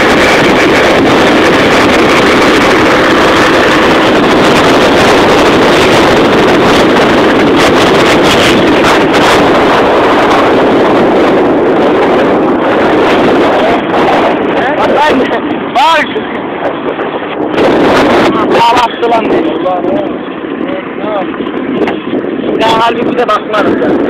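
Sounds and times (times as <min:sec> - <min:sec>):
scooter engine drone: 0:00.0 - 0:24.0
wind rushing over microphone: 0:00.0 - 0:24.0.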